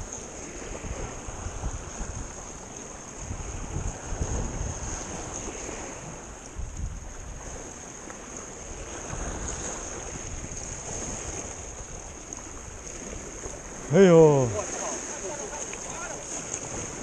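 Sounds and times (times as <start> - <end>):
waves breaking on rocks: 0.0 - 17.0
wind buffeting microphone: 0.0 - 17.0.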